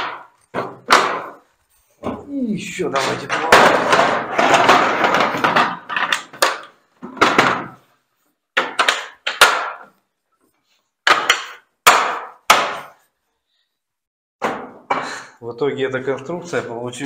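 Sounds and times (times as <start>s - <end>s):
plastic cases clattering: 2.9s - 7.8s.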